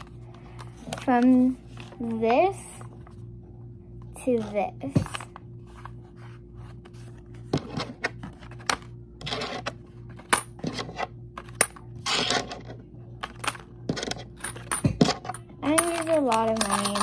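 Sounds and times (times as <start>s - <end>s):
coins clinking: 9.2s - 17.0s
coins rattling: 9.2s - 17.0s.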